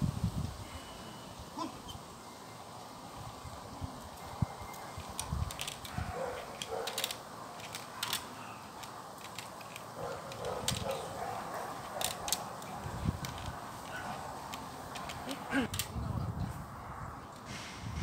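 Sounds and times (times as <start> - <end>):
sharp clicks: 4.7 - 11.1
dog barking: 6.0 - 7.0, 10.0 - 12.2.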